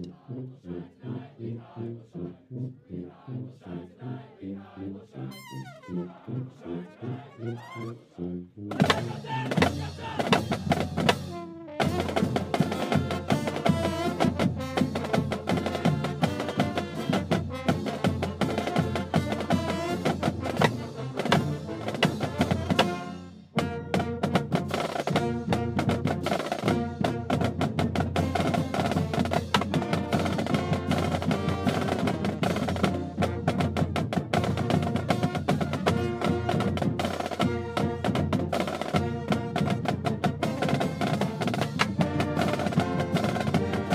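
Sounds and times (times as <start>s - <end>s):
marching band playing: 5.2s - 43.9s
steady drumbeat: 8.7s - 23.0s, 24.0s - 43.9s.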